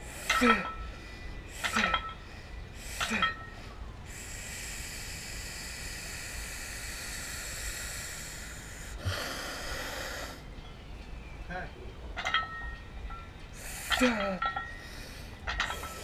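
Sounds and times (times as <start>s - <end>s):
rush of breath-like noise: 0.0s - 10.5s
steady hiss: 0.0s - 10.5s, 13.5s - 16.0s.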